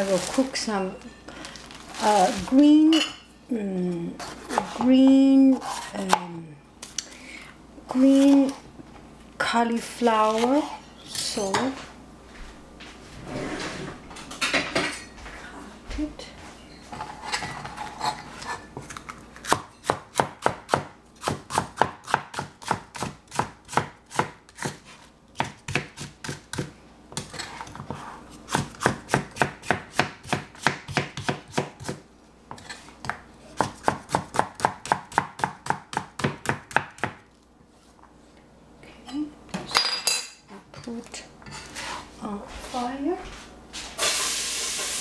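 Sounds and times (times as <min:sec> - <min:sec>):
knife chopping vegetables: 0:18.4 - 0:37.3.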